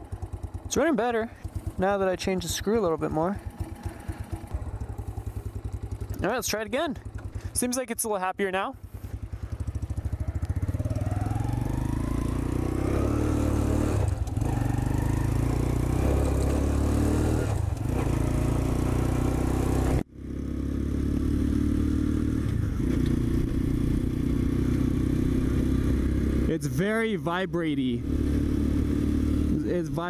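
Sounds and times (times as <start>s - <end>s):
motorcycle engine accelerating: 0.0s - 7.8s, 8.7s - 30.0s.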